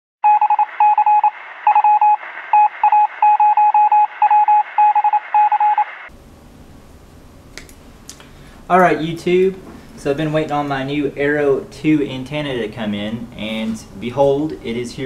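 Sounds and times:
morse code beeps: 0.2s - 6.0s.

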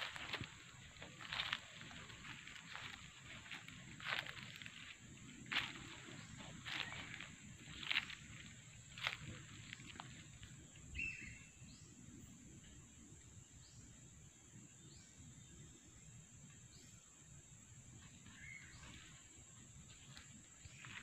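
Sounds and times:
footsteps and rustling on path: 0.0s - 11.3s, 18.0s - 21.0s
high-pitched insect drone: 0.0s - 14.1s.

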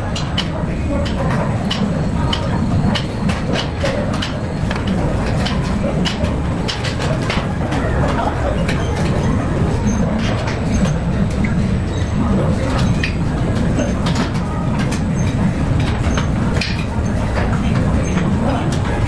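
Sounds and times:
faint voices: 0.0s - 19.0s
sharp clicks and clanks: 0.0s - 19.0s.

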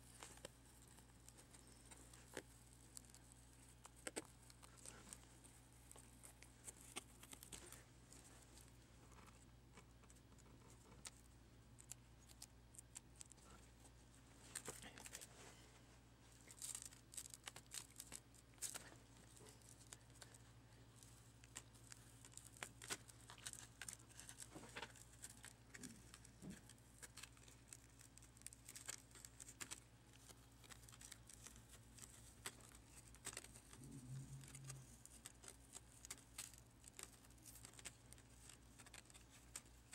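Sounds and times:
low steady hum: 0.0s - 39.9s
tape peeling crackles: 0.1s - 9.4s, 16.3s - 39.9s.

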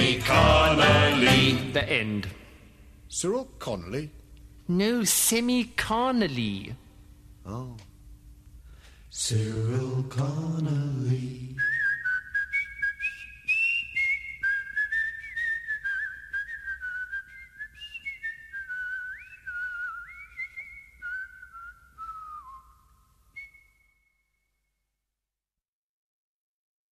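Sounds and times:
person whistling a tune: 11.6s - 24.4s.

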